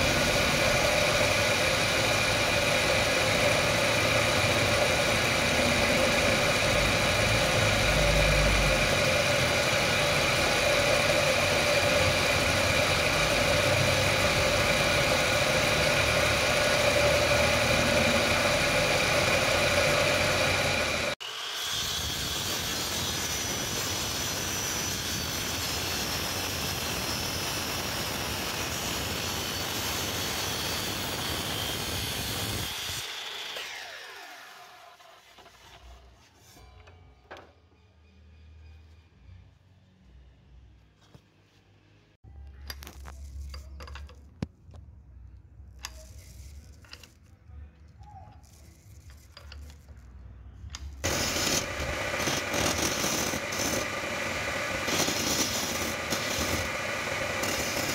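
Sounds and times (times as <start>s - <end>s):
motor spinning down: 0.0s - 21.6s
wood lathe motor running: 0.0s - 34.8s, 51.0s - 57.9s
turning tool cutting wood: 0.0s - 36.6s, 50.7s - 57.9s.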